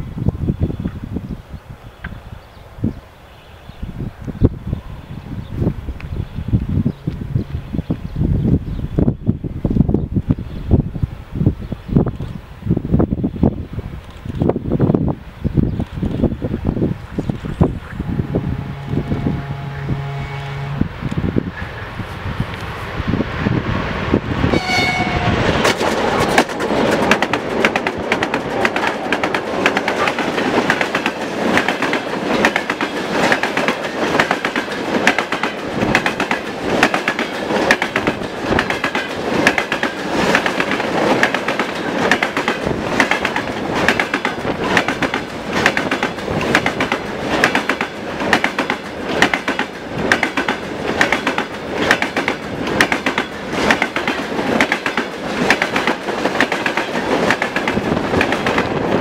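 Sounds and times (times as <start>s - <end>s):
diesel locomotive passing: 1.5s - 59.0s
train horn blast: 18.0s - 21.0s, 24.5s - 26.3s.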